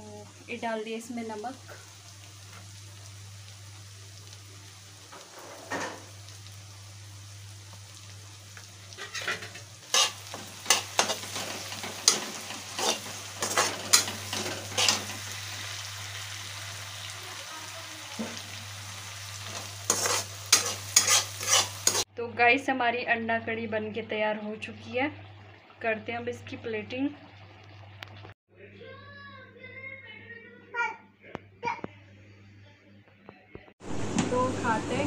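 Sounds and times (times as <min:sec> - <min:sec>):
masala sizzling in a pan: 0:00.0 - 0:28.4
metal spatula scraping a pan: 0:08.9 - 0:15.3, 0:19.4 - 0:22.1.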